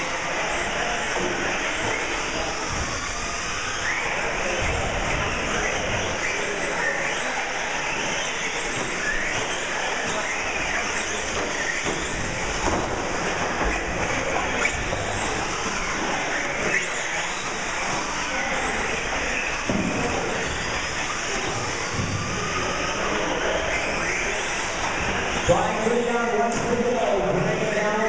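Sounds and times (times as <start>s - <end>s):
rc truck motors whining: 0.0s - 28.0s
tyre and running noise: 8.6s - 25.7s.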